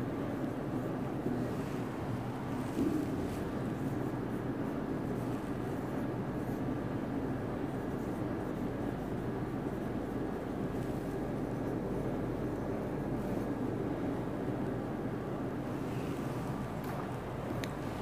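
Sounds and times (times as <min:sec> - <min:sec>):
low room hum: 0:00.0 - 0:18.0
marker writing on whiteboard: 0:07.6 - 0:13.6.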